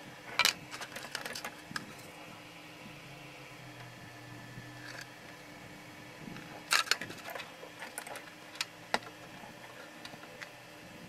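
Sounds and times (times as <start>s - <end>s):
faint steady hum: 0.0s - 11.0s
plastic parts clicking: 0.4s - 1.9s, 6.4s - 9.2s.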